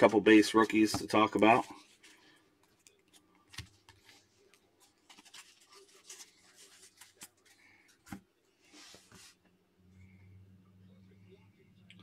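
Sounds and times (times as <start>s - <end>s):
trading cards rustling and tapping: 0.0s - 8.2s.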